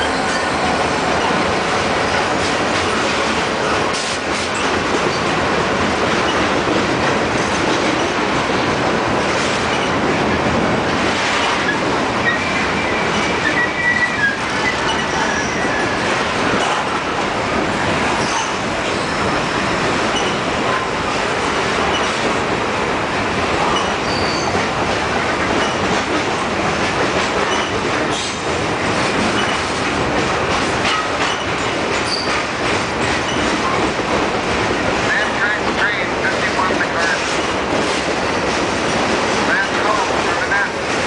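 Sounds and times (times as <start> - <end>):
high wheel squeals: 0.0 - 1.4, 12.2 - 16.1, 23.7 - 24.6, 32.1 - 32.4
rail joint clicks: 0.0 - 41.0
train wheels on rails: 0.0 - 41.0.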